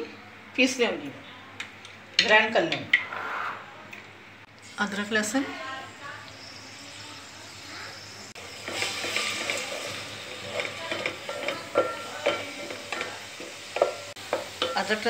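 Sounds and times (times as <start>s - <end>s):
paste sizzling in hot oil: 4.6s - 15.0s.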